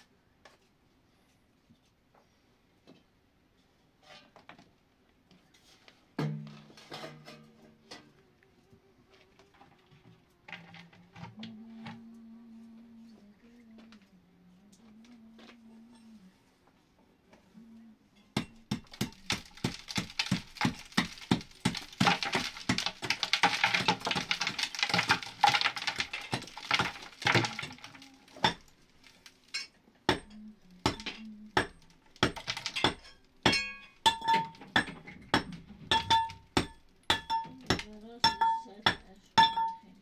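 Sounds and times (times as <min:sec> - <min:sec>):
hard objects clinking together: 0:18.5 - 0:39.9.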